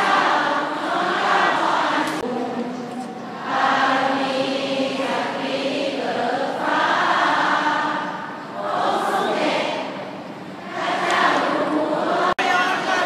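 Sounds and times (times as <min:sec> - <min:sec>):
crowd singing in unison: 0:00.0 - 0:13.0.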